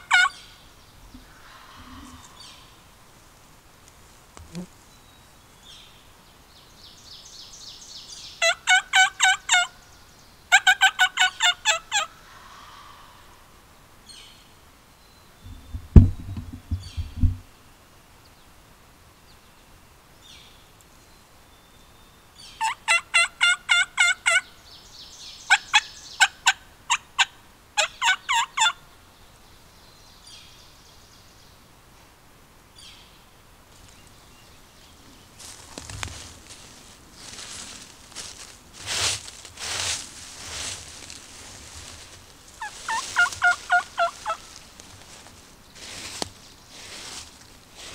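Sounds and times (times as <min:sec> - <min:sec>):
turkey yelping: 0:00.0 - 0:00.4, 0:08.4 - 0:09.7, 0:10.5 - 0:13.1, 0:22.6 - 0:24.4, 0:25.5 - 0:28.8, 0:42.6 - 0:44.6
heavy low thumps: 0:15.5 - 0:17.4.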